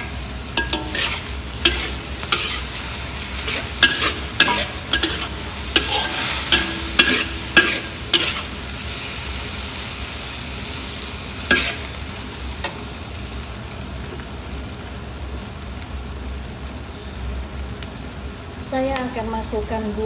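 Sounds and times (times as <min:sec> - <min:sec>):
stir-fry sizzling: 0:00.0 - 0:20.0
spatula knocking against wok: 0:05.8 - 0:08.4.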